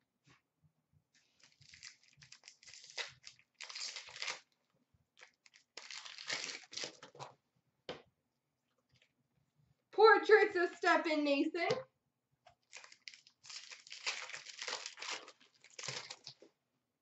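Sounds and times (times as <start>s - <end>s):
card pack wrapper tearing: 1.4s - 4.5s, 5.2s - 7.1s, 12.6s - 16.4s.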